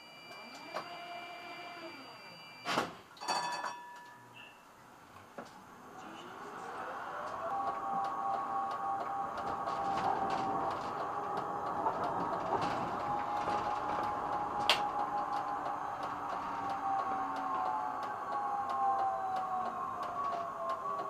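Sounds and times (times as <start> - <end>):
tram electric whine: 0.0 - 2.9, 5.0 - 21.0
wheels clicking and rattling: 7.3 - 21.0.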